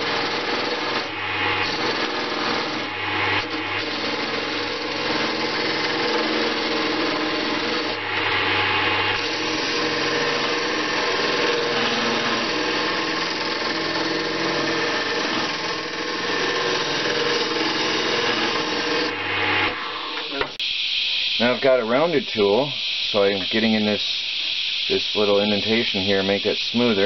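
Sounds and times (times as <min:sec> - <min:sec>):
turning tool scraping wood: 0:00.0 - 0:20.3
lathe motor hum: 0:00.0 - 0:21.6.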